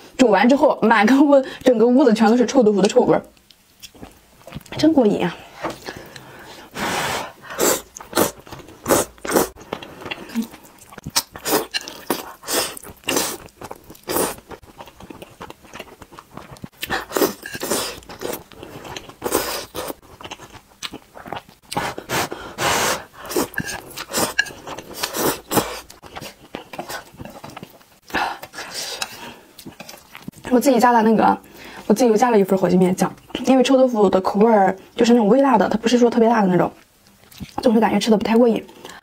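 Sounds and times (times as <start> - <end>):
slurping noodles: 6.7 - 9.6, 21.7 - 27.0.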